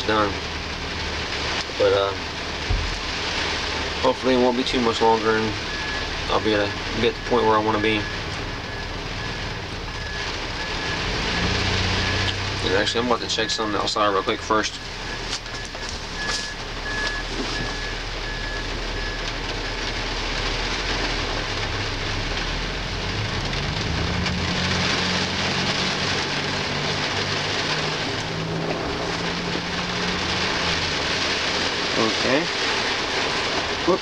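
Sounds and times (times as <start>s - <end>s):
vehicle engine reversing: 2.7s - 32.5s
faint high beeps: 15.0s - 19.2s.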